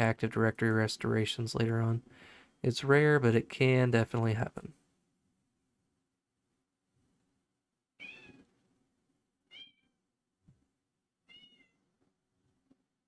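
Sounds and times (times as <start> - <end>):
cat meowing: 8.0 - 8.4, 9.5 - 9.9, 11.2 - 11.8.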